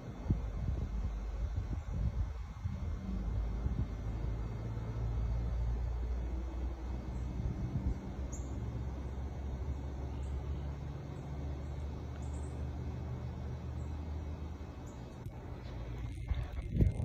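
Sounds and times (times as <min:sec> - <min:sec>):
low rumble with hum: 0:00.0 - 0:17.0
faint high bird chirps: 0:08.3 - 0:08.7, 0:11.2 - 0:12.7.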